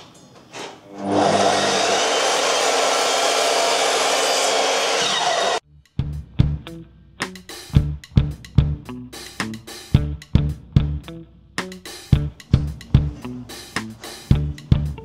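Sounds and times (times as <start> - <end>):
mitre saw running: 0.9 - 5.6
drum music: 5.9 - 15.0.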